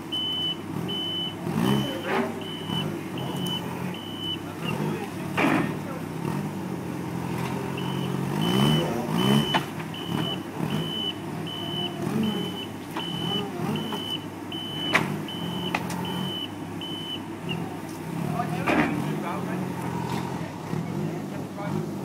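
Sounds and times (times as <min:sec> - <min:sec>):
forklift warning beeps: 0:00.0 - 0:04.9, 0:07.7 - 0:17.8
engine running and revving: 0:00.0 - 0:22.0.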